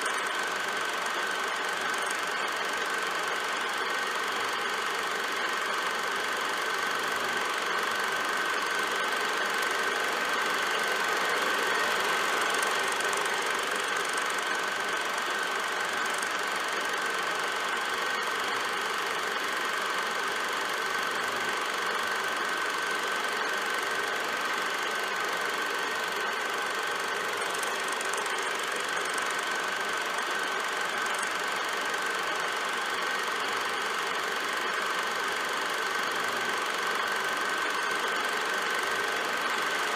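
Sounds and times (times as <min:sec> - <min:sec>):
movie projector whirring: 0:00.0 - 0:39.9
thin steady tone: 0:00.0 - 0:39.9.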